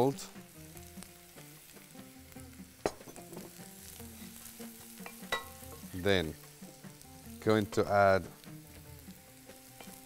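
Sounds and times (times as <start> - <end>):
garlic sizzling in a pot: 0.0 - 10.0.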